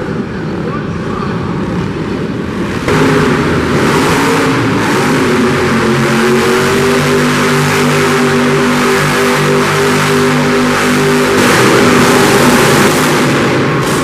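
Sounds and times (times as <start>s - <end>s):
heavy truck engine running: 0.0s - 14.0s
small atv engines buzzing: 2.9s - 14.0s.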